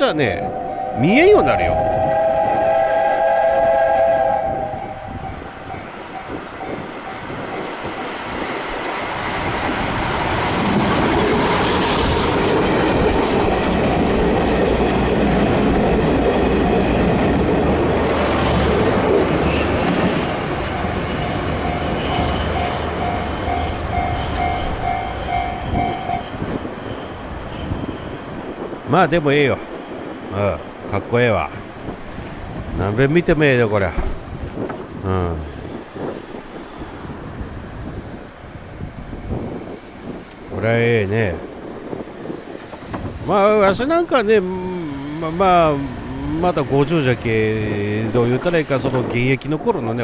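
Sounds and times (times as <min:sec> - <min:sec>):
steam locomotive whistle: 0:00.3 - 0:06.8.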